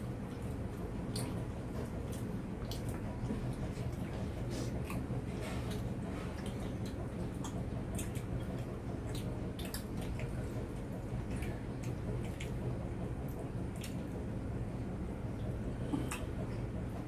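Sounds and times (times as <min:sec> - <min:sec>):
steady low hum: 0:00.0 - 0:17.0
chewing and mouth smacks: 0:01.1 - 0:12.7, 0:13.7 - 0:14.1.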